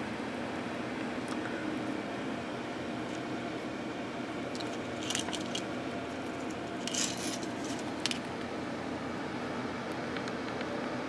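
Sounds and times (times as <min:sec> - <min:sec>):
small objects clicking and rustling: 0:04.5 - 0:05.7, 0:06.3 - 0:08.3.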